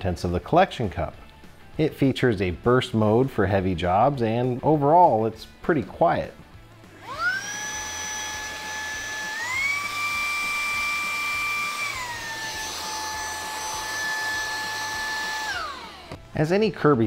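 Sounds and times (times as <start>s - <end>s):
handheld vacuum motor whine: 6.9s - 16.3s.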